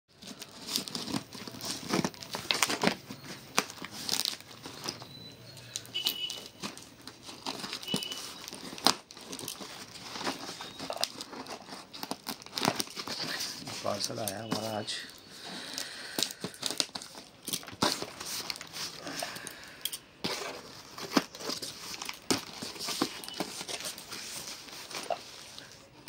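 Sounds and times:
scissors cutting packing tape: 0:00.2 - 0:05.0.

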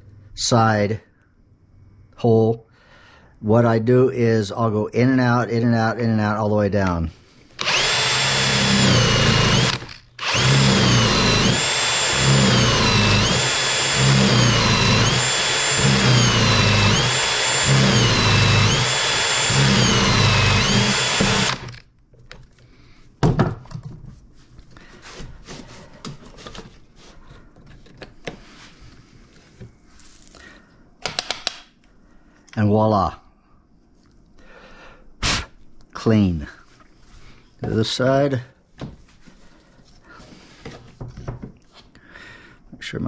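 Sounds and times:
cordless drill boring into wood: 0:07.6 - 0:21.9.

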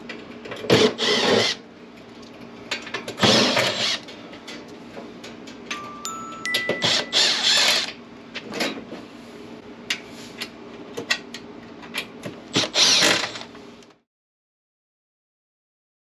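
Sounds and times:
cordless driver running: 0:12.6 - 0:13.5.

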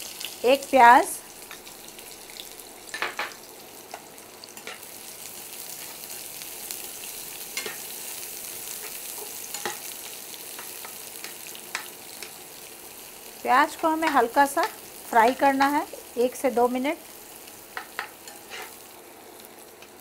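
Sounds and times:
onion sizzling in oil: 0:00.0 - 0:20.0
spatula scraping a pan: 0:17.8 - 0:18.8.

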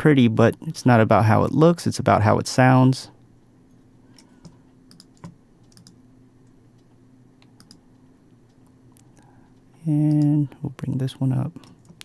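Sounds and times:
low steady hum: 0:00.0 - 0:12.0
mouse and keyboard clicking: 0:04.2 - 0:06.0, 0:07.5 - 0:07.8.

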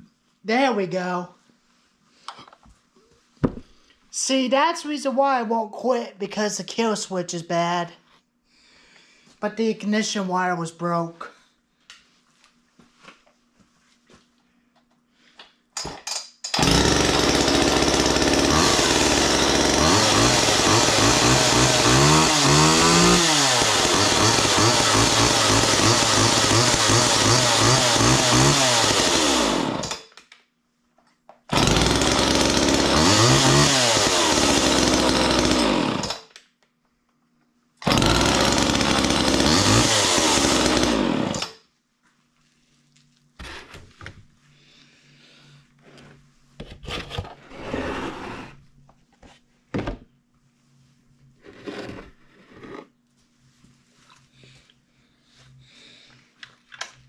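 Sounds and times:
chainsaw revving: 0:16.6 - 0:30.0, 0:31.5 - 0:36.3, 0:37.8 - 0:41.6.

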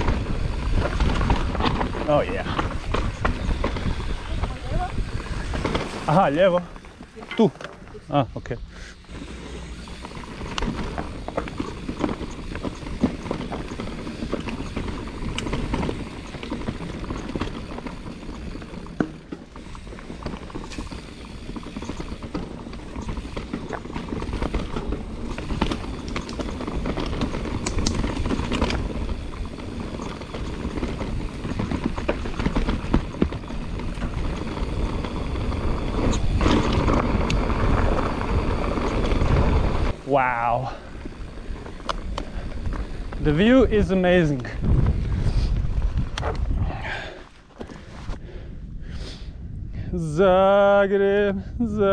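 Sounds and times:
bike rattling: 0:00.0 - 0:51.9
bike tyres on rough ground: 0:00.0 - 0:51.9.

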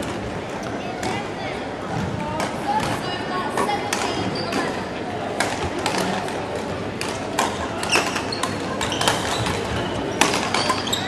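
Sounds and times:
hall background noise: 0:00.0 - 0:11.0
rackets hitting shuttlecocks: 0:05.3 - 0:11.0
shoes squeaking on wooden floor: 0:07.8 - 0:11.0.

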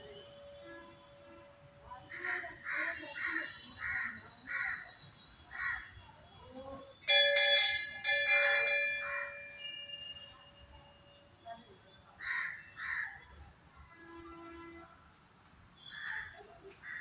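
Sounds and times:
crows cawing: 0:02.1 - 0:04.8, 0:05.5 - 0:05.9, 0:12.2 - 0:13.2
metal bell ringing: 0:07.0 - 0:11.2.

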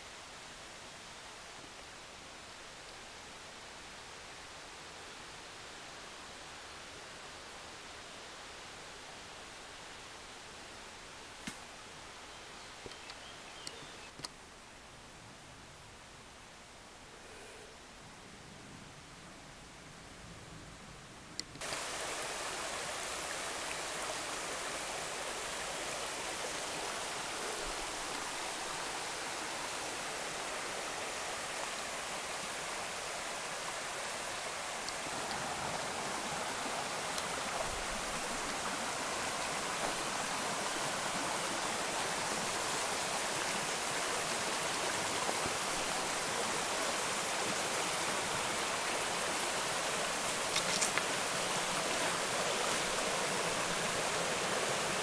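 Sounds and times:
faint clicks: 0:12.8 - 0:14.4, 0:50.4 - 0:51.1
water rushing over stones: 0:21.6 - 0:55.0.

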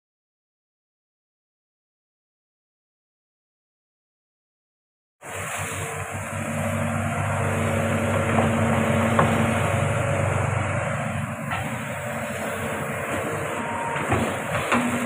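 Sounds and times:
excavator diesel engine running: 0:05.2 - 0:15.0.

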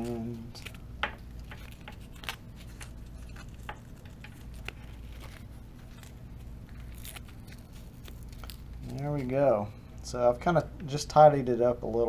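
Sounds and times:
cable clicking and rustling: 0:00.0 - 0:09.4
faint low hum: 0:00.0 - 0:12.0.

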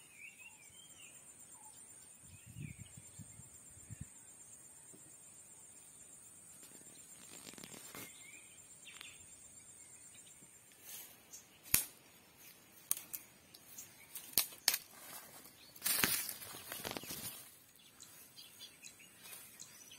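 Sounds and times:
bird chirp: 0:00.0 - 0:19.9
high insect drone: 0:00.0 - 0:19.9
twigs snapping: 0:11.6 - 0:15.2, 0:15.8 - 0:17.4.

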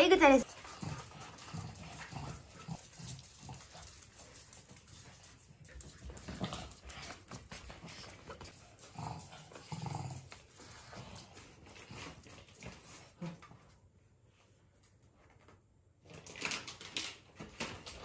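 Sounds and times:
dog claws ticking on hard floor: 0:00.4 - 0:13.5.

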